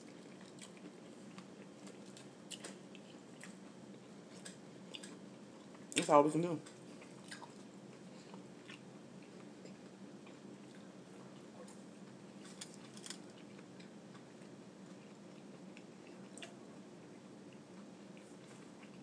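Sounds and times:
person chewing: 0.0s - 3.7s, 4.3s - 5.8s, 6.7s - 11.8s, 17.5s - 19.0s
low room hum: 0.0s - 19.0s.

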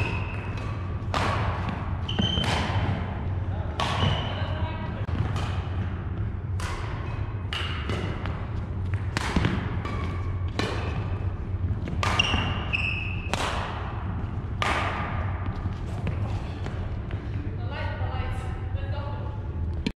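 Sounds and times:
shoe squeaks: 0.0s - 0.6s, 2.0s - 2.7s, 4.0s - 4.6s, 12.1s - 13.4s
racket hitting shuttlecock: 0.0s - 4.4s, 5.1s - 16.8s
steady low hum: 0.0s - 19.9s.

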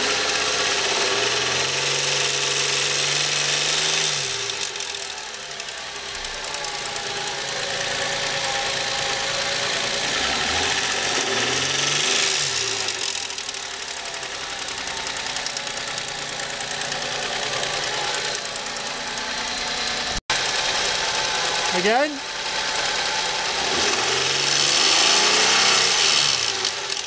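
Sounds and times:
car engine revving: 0.0s - 27.0s
engine bay rattle: 4.6s - 21.7s.

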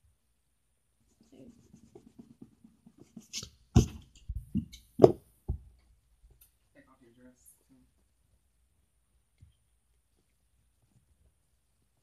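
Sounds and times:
soft rubbing of modelling clay: 0.8s - 4.6s.

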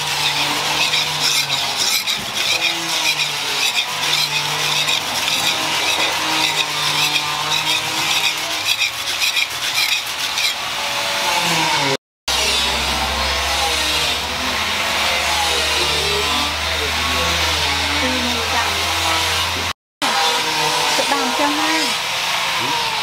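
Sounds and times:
blade scraping on sharpening stone: 0.0s - 10.6s.

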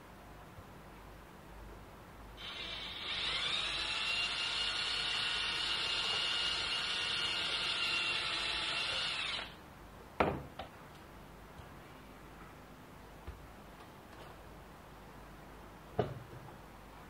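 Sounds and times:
cordless drill whining: 2.4s - 9.6s.

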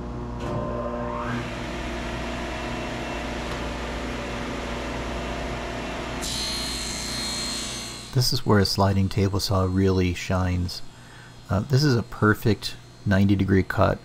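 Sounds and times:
table saw running: 0.5s - 14.0s
saw blade cutting plywood: 6.2s - 10.0s.

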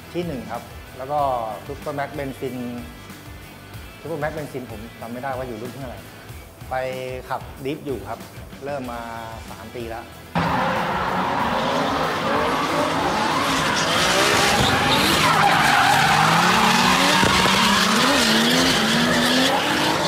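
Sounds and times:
car engines revving: 10.3s - 20.0s
tyres screeching: 10.4s - 20.0s.

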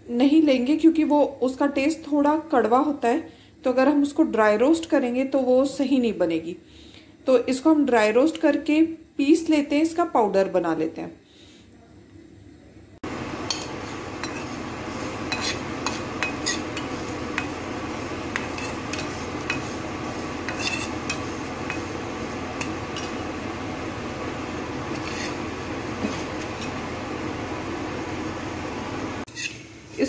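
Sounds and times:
spices sizzling hiss: 13.1s - 28.1s
steel spatula scraping a pan: 13.5s - 23.4s, 24.7s - 26.8s, 29.3s - 30.0s.

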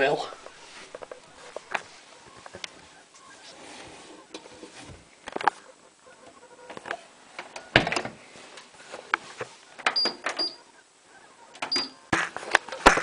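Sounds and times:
door clunking shut: 7.7s - 8.2s.

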